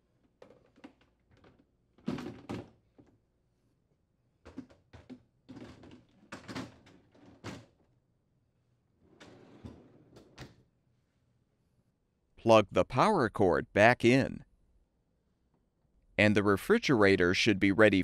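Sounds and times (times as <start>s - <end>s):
hollow plastic knocks and clatters: 4.4s - 7.7s.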